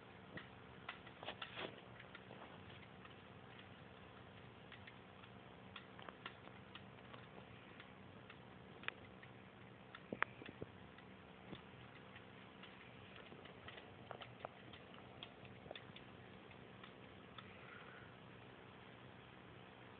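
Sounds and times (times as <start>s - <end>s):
kittens playing clicks and taps: 0.0s - 17.8s
low steady hum: 0.0s - 19.9s.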